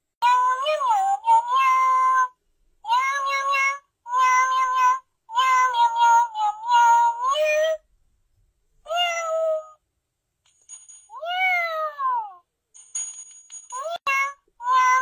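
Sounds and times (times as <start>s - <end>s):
toy playing recorded kitten meows: 0.2s - 7.8s, 8.9s - 9.8s, 11.2s - 12.4s, 13.8s - 15.0s.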